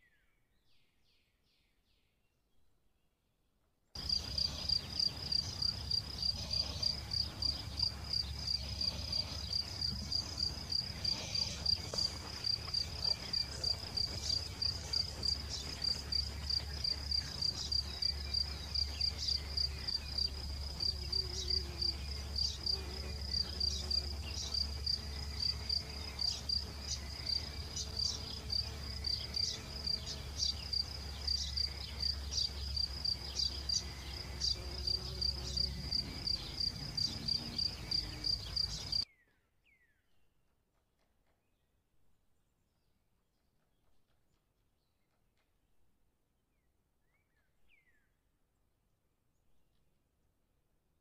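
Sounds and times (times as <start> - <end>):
insect chirping: 4.0 - 39.0.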